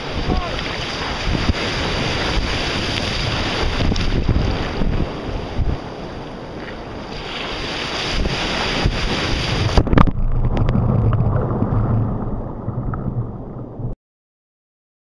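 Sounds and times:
water splashing against kayak hull: 0.0 - 13.9
wind buffeting microphone: 0.0 - 13.9
loud splash: 7.1 - 14.0
low hum: 9.8 - 14.0.

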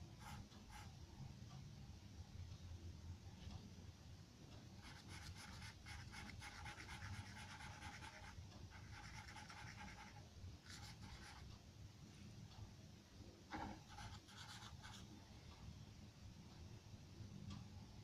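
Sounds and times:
low steady hum: 0.0 - 18.0
charcoal pencil scratching on paper: 4.8 - 11.4, 13.6 - 15.0.

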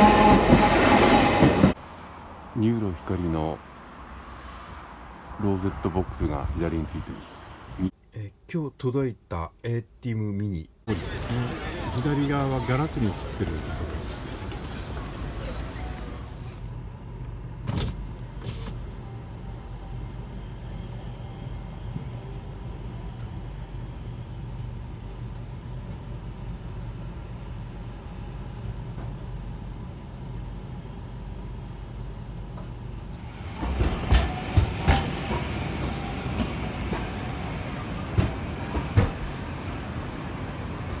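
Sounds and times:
clacks on tram tracks: 0.0 - 1.9, 10.9 - 16.8, 32.4 - 41.0
street noise: 0.0 - 8.1, 10.8 - 41.0.

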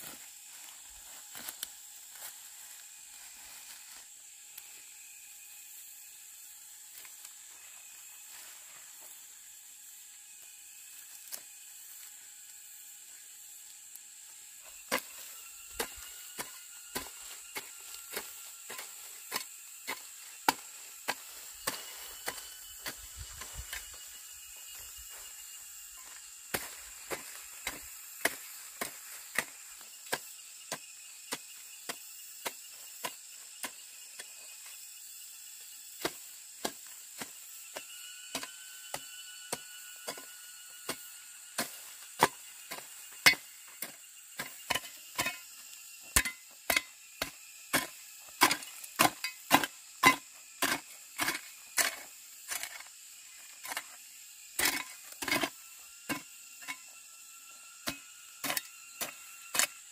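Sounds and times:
blade chopping wood: 14.8 - 23.9, 26.0 - 34.3, 36.0 - 52.9, 54.5 - 56.8.

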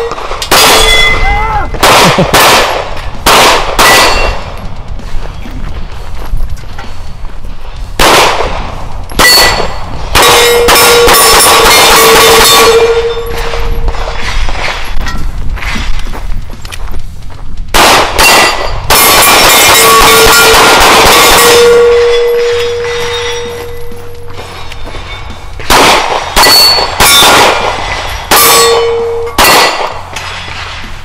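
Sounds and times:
steel plate ringing: 0.0 - 1.8, 3.8 - 4.8, 9.0 - 15.4, 18.2 - 30.9
steel plate clanging: 0.0 - 2.2, 3.6 - 5.5, 9.0 - 16.2, 18.2 - 31.0
pistol shots: 0.0 - 4.5, 8.0 - 14.9, 17.7 - 23.0, 25.6 - 30.9.

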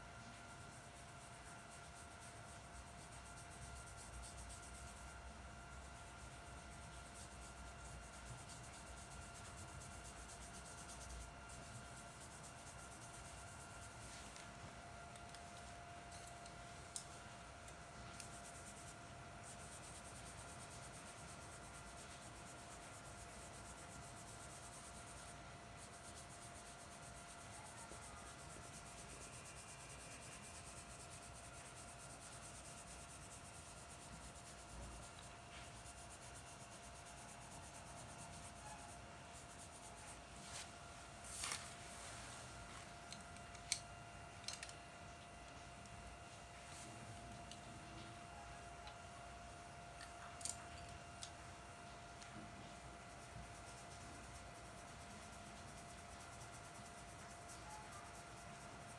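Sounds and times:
low steady hum: 0.0 - 58.9
rubbing on paper: 0.3 - 5.2, 5.8 - 14.4, 18.1 - 42.8
pencil scratching on paper: 0.3 - 14.3, 18.1 - 41.7, 53.0 - 58.9.

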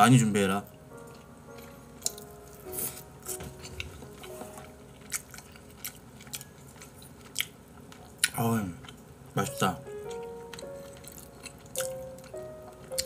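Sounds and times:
mouth chewing sounds: 1.1 - 9.1, 10.0 - 13.0.

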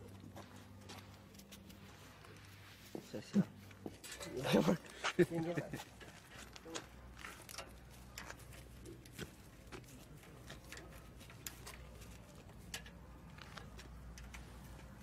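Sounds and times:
metal parts clicking and tapping: 6.4 - 15.0.

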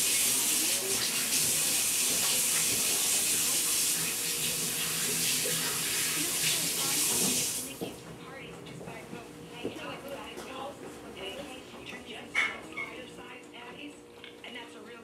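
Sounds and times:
faucet running into sink: 0.0 - 7.8.

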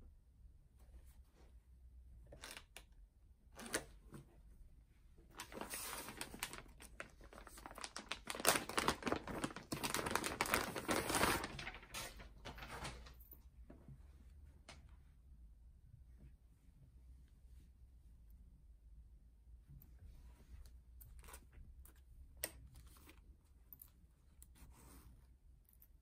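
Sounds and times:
plastic bag crinkling: 5.3 - 13.0.

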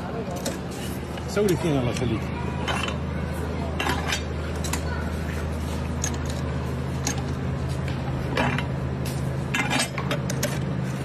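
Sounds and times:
steady low hum: 0.0 - 11.0
metal juice press clanking: 3.8 - 4.8, 8.3 - 8.8.

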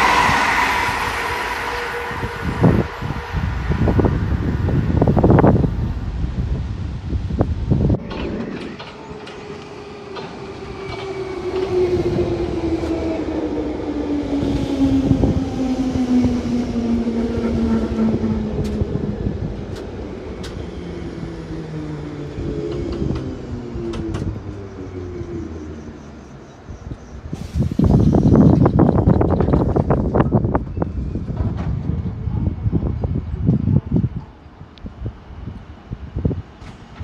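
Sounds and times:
train whine falling in pitch: 0.0 - 5.4
train rumble: 0.0 - 37.0.

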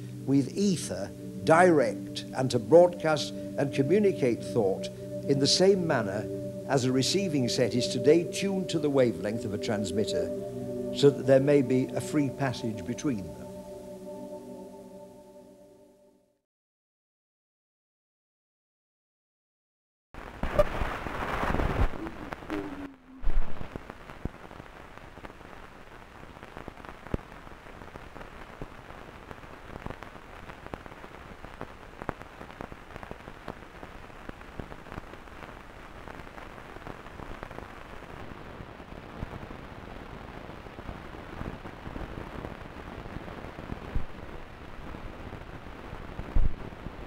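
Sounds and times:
crackling hiss with clicks: 0.0 - 15.2, 20.2 - 47.0
loud noise burst: 20.2 - 24.0.

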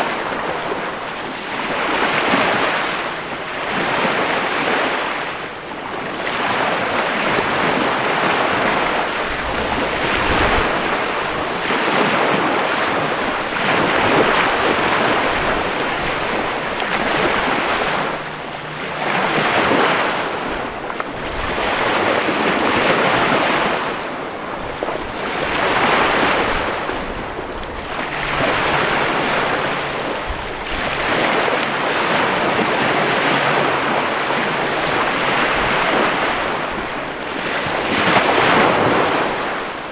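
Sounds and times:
waves breaking on sandy beach: 0.0 - 39.9.

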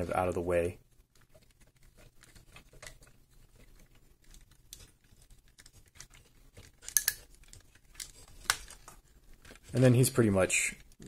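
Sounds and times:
plastic toy parts clicking: 4.2 - 9.8.

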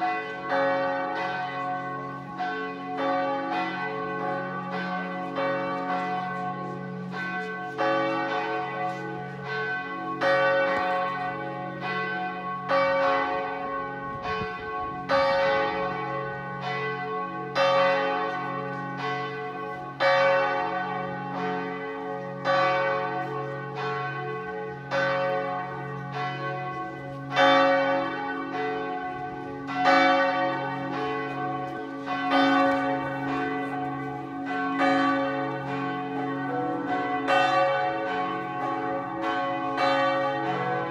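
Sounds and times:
church bells ringing: 0.0 - 40.9.

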